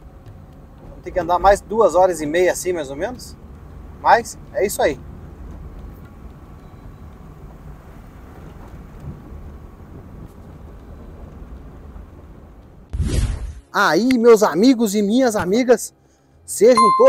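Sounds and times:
vehicle driving on dirt road: 0:00.0 - 0:12.9.

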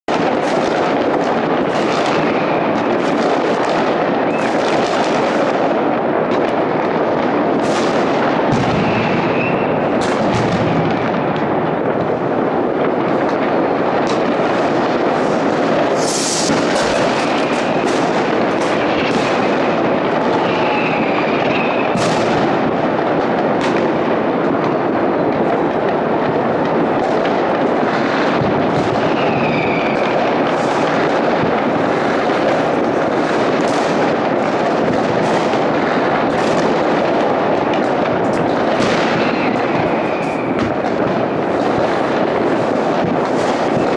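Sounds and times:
fireworks bangs and crackles: 0:00.0 - 0:43.9
firework whistles: 0:00.6 - 0:03.6, 0:04.2 - 0:05.4, 0:07.6 - 0:10.8, 0:14.2 - 0:22.5, 0:27.9 - 0:35.7, 0:38.3 - 0:43.9.

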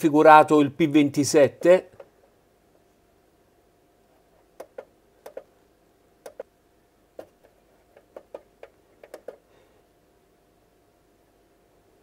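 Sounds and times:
keypad button clicks: 0:04.6 - 0:05.5, 0:06.2 - 0:06.5.

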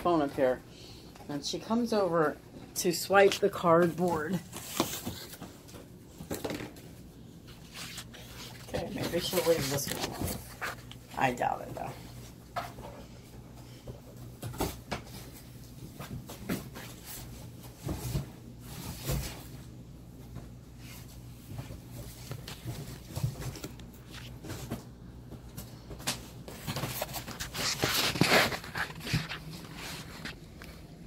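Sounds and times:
cardboard ripping and crumpling: 0:07.6 - 0:10.9, 0:26.6 - 0:30.4.

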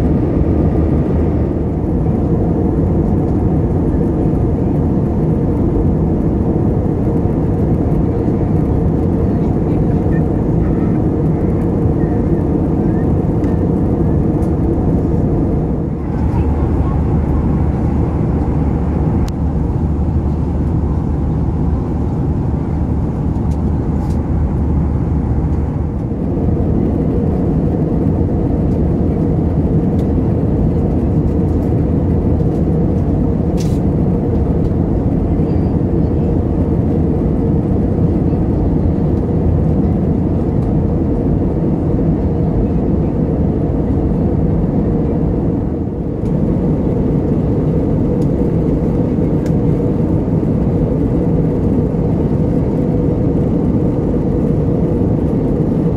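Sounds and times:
airplane cabin engine rumble: 0:00.0 - 0:55.9
low hum: 0:00.0 - 0:55.9.

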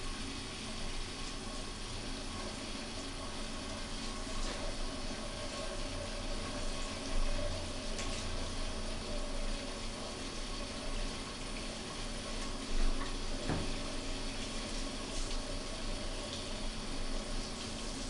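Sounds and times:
water running from a hose: 0:00.0 - 0:18.0.

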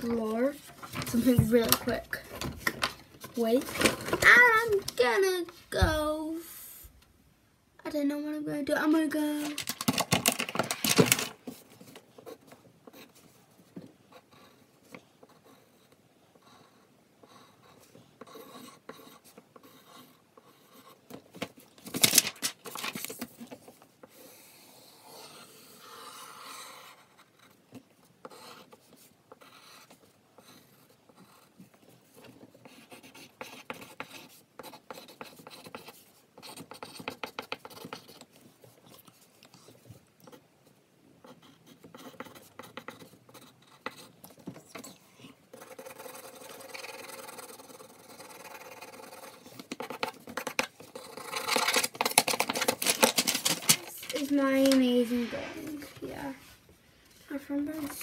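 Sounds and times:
pencil scratching on paper: 0:00.0 - 0:02.3, 0:11.5 - 0:21.7, 0:22.6 - 0:53.1.

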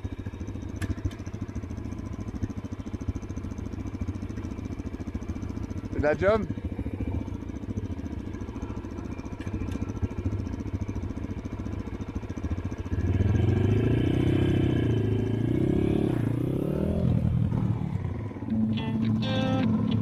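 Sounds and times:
dirt bike engine revving: 0:12.9 - 0:18.2.

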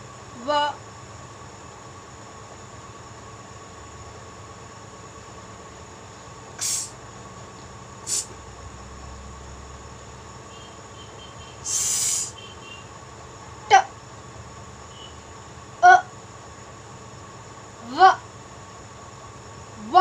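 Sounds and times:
faint electrical hum: 0:00.0 - 0:20.0
background hiss: 0:06.6 - 0:07.0, 0:08.0 - 0:08.4, 0:10.5 - 0:12.8
short hissing sounds: 0:06.6 - 0:07.0, 0:08.0 - 0:08.4, 0:11.5 - 0:12.5.

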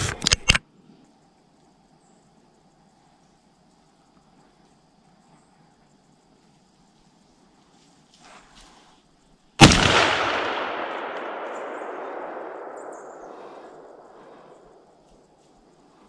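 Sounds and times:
shotgun shot with echo: 0:09.6 - 0:14.2.

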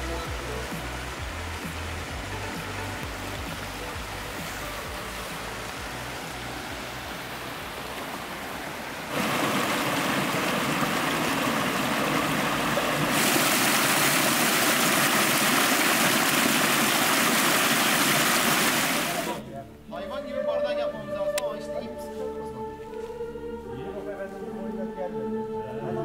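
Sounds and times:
stream rushing over rocks: 0:00.0 - 0:19.4.

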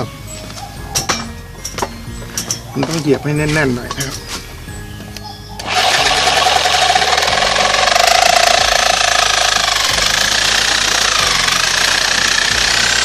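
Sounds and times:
reciprocating saw cutting bamboo: 0:05.6 - 0:13.0.

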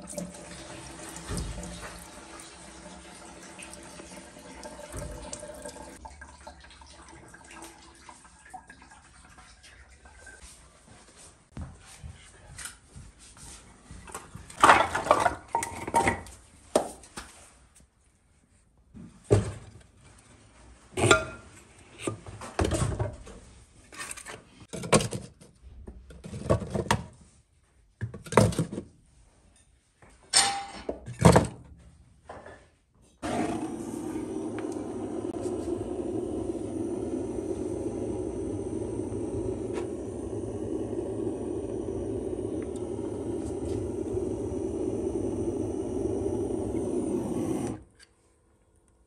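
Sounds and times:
gas torch hissing: 0:33.2 - 0:47.9.

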